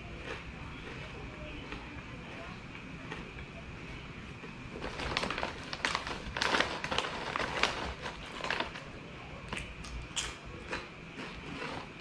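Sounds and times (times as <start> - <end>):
snack bag crinkling: 4.7 - 8.9.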